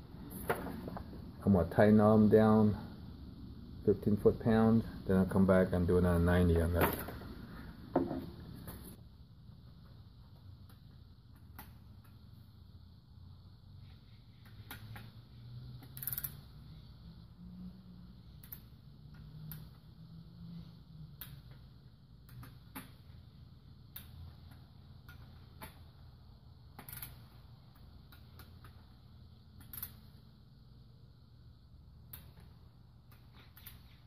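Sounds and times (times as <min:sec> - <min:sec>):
wrench ratcheting clicks: 0:15.8 - 0:16.4, 0:29.6 - 0:30.0.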